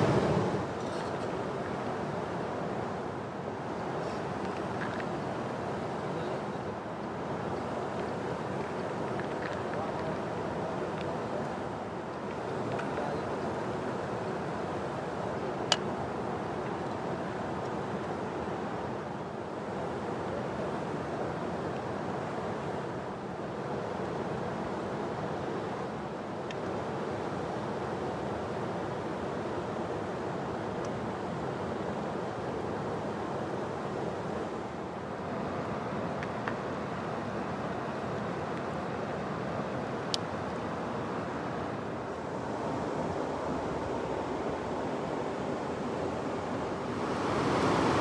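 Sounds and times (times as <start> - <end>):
river flowing: 0.0 - 48.0.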